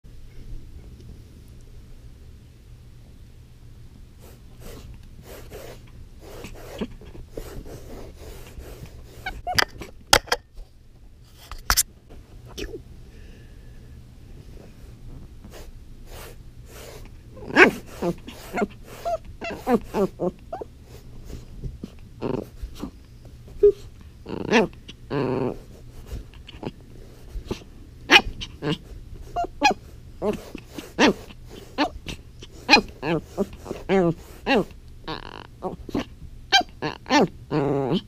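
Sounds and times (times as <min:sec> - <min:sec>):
puppy growling and yapping: 0:17.3 - 0:20.7, 0:21.8 - 0:23.0, 0:23.6 - 0:26.8, 0:27.4 - 0:38.0.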